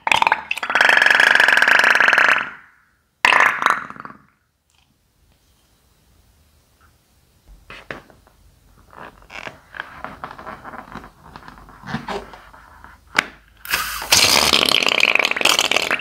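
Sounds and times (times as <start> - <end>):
slime squirting: 13.3 - 16.0.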